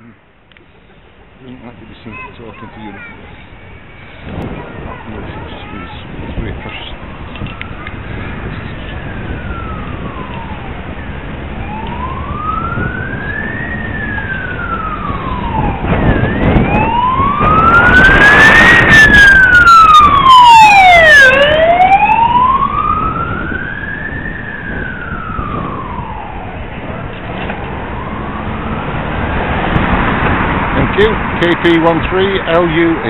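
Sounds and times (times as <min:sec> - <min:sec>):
road and wind noise: 0:00.0 - 0:33.0
emergency siren wailing: 0:06.7 - 0:32.7.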